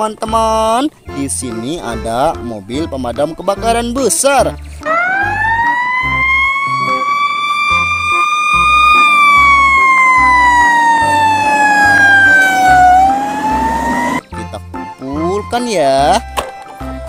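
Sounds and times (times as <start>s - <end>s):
background music with low beat: 0.1s - 17.0s
fire truck siren wailing: 4.8s - 14.2s.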